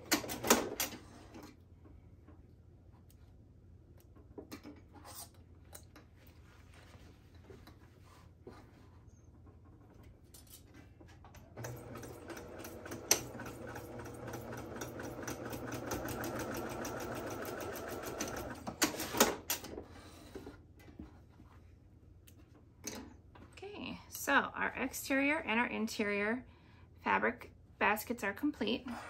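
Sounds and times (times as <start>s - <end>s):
sewing machine stitching: 11.6s - 19.7s.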